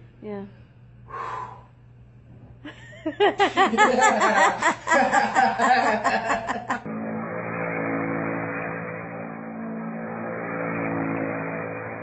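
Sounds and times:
loud high-pitched laughter: 0:03.6 - 0:06.8.

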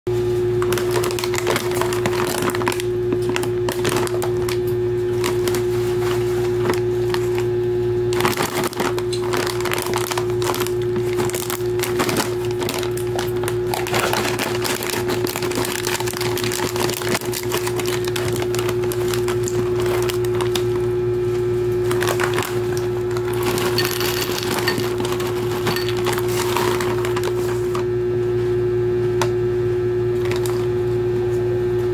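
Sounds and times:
steady hum: 0:00.2 - 0:31.9
foil snack bag crinkling: 0:00.5 - 0:20.9, 0:21.8 - 0:27.8, 0:30.2 - 0:30.7
scissors cutting foil bag: 0:00.6 - 0:07.5, 0:08.1 - 0:20.8, 0:21.8 - 0:27.7
snack pieces tipped into a bowl: 0:21.9 - 0:27.3.

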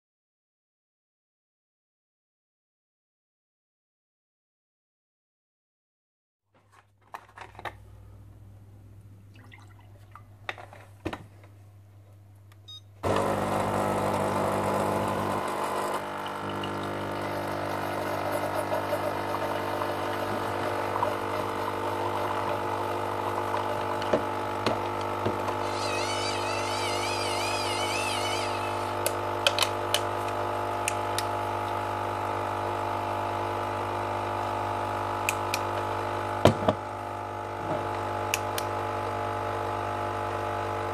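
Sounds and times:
coffee machine pump humming: 0:13.0 - 0:40.9.

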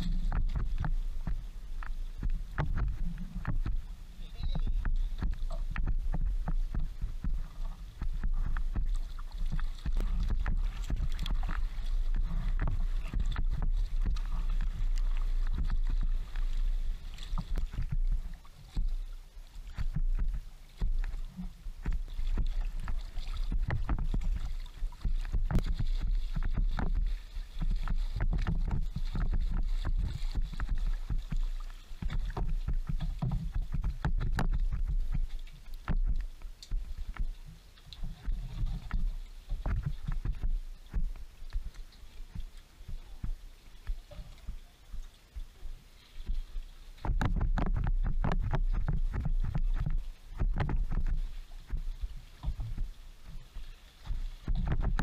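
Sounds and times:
water splashing against boat: 0:00.0 - 0:55.0
wind buffeting microphone: 0:54.3 - 0:55.0.

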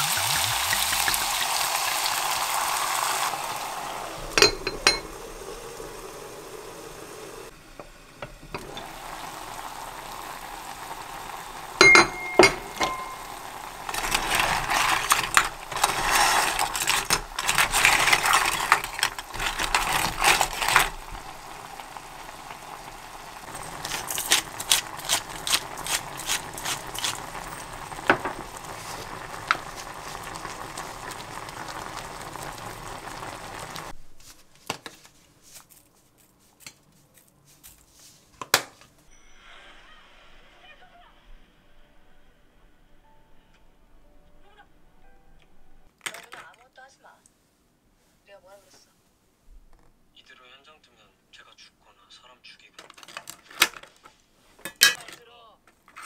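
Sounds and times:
shells clattering in a saucepan: 0:04.3 - 0:05.2, 0:11.7 - 0:21.6, 0:23.4 - 0:29.7, 0:54.6 - 0:55.2.

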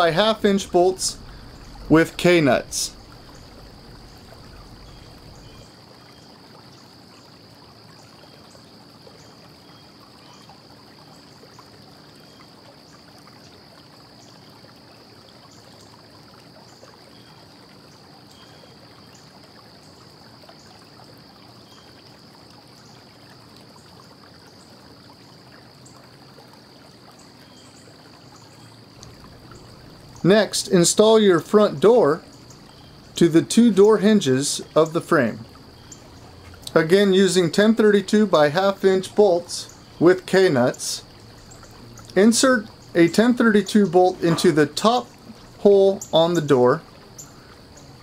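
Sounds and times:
faint low hum: 0:00.0 - 0:06.3, 0:29.0 - 0:48.0
room tone hiss: 0:00.0 - 0:11.3, 0:27.4 - 0:48.0
faint high-pitched whine: 0:00.0 - 0:13.0, 0:27.2 - 0:48.0.

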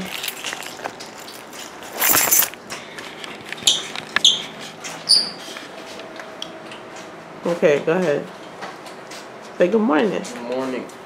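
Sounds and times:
small hard objects clinking: 0:00.0 - 0:02.6.

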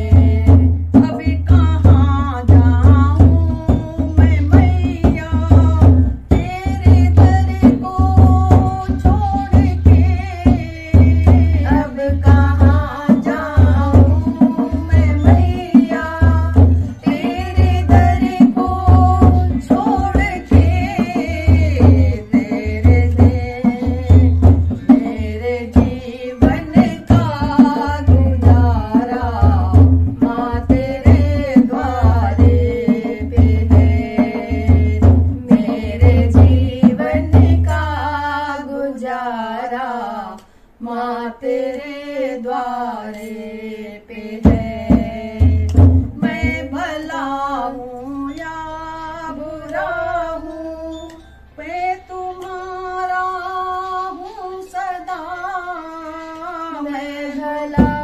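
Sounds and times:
hand drum beat: 0:00.0 - 0:38.3, 0:44.3 - 0:47.8, 0:57.7 - 0:58.0
women singing: 0:00.0 - 0:58.0.

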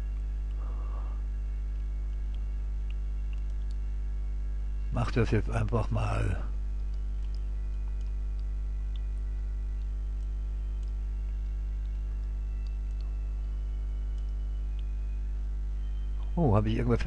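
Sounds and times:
faint ticks: 0:00.0 - 0:04.0, 0:06.7 - 0:16.4
electrical hum: 0:00.0 - 0:17.0.

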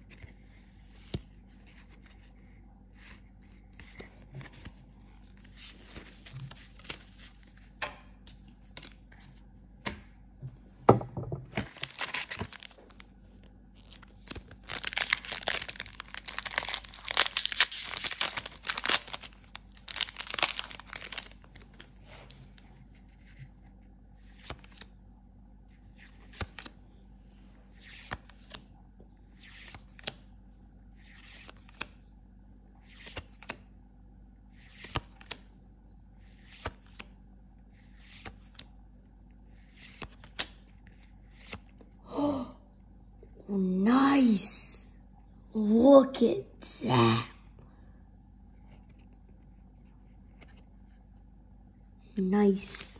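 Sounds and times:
foil wrapper tearing and crinkling: 0:11.7 - 0:12.8, 0:13.8 - 0:21.9
cards clicking and sliding: 0:34.6 - 0:35.4.

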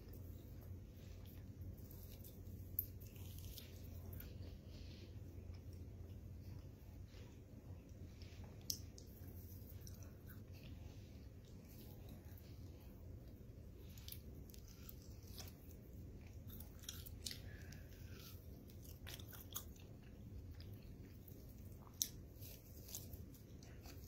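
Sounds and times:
low steady background noise: 0:00.0 - 0:24.0
chewing mouth clicks and smacks: 0:07.8 - 0:12.6, 0:13.2 - 0:24.0.

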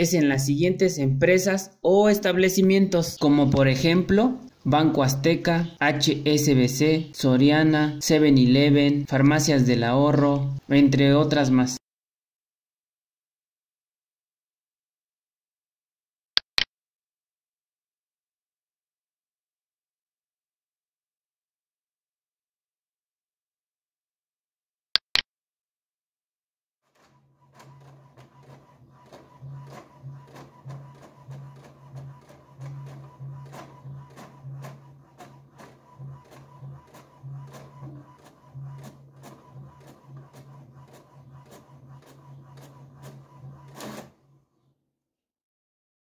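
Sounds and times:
inkjet printer printing: 0:03.0 - 0:11.3, 0:26.9 - 0:44.6
printer clicks: 0:03.1 - 0:07.7, 0:27.0 - 0:44.4
printer clack: 0:27.0 - 0:44.3.

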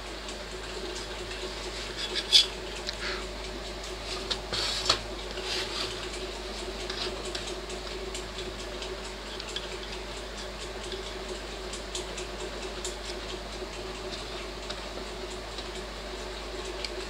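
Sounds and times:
steady low hum: 0:00.0 - 0:17.0
metal applicator scraping metal: 0:01.8 - 0:02.6.

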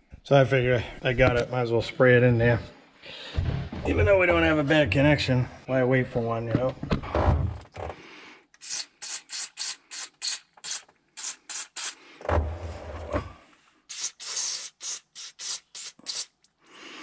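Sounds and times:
aerosol can short hisses: 0:08.6 - 0:12.0, 0:13.9 - 0:16.4.

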